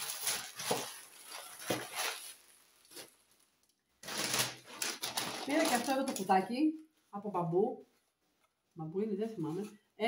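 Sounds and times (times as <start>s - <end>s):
paper wrapping rustling: 0.0s - 6.4s
plastic bag crinkling: 0.0s - 6.4s.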